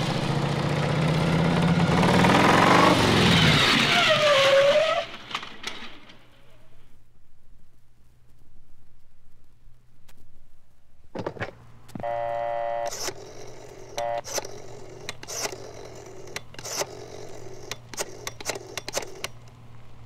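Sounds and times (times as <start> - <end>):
telephone dialing clicks: 11.2 - 19.5
buzzy dial tone: 11.9 - 19.3
brief telephone tone: 12.0 - 14.5.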